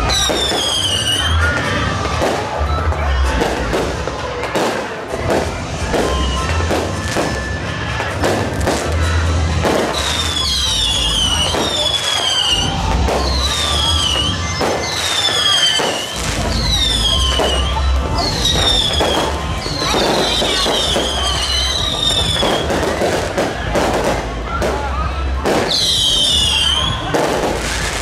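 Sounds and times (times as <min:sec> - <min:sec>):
fireworks bangs: 0:00.0 - 0:28.0
fireworks whistles falling in pitch: 0:00.0 - 0:28.0.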